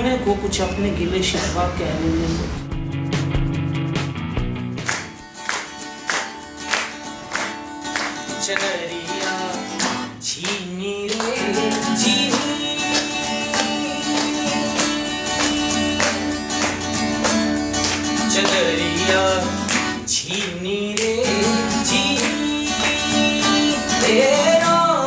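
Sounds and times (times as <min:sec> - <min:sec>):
acoustic guitar strumming: 0:00.0 - 0:25.0
man singing: 0:08.3 - 0:16.5, 0:18.2 - 0:25.0.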